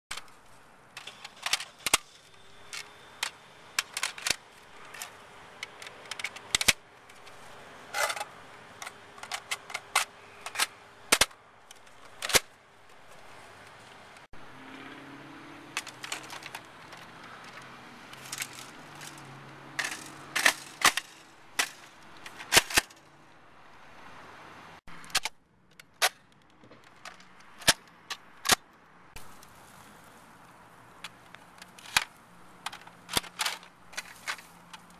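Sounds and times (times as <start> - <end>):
faint outdoor background: 0.1 - 34.9.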